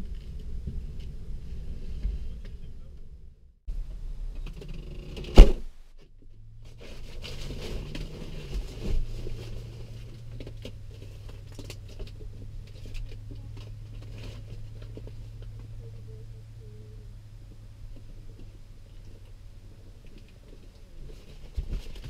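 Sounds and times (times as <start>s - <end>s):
steady low hum: 0.0s - 22.0s
car door slamming: 5.3s - 5.7s
thump: 5.3s - 5.7s.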